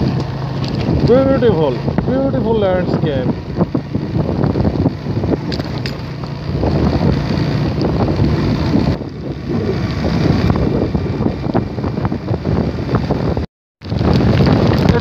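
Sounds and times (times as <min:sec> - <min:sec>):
motorcycle engine hum: 0:00.0 - 0:15.0
wind buffeting microphone: 0:00.0 - 0:15.0.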